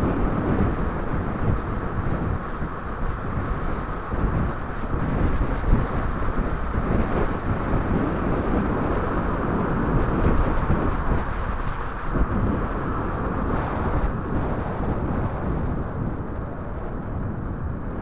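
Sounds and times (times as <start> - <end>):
road noise: 0.0 - 18.0
wind rush: 0.0 - 18.0.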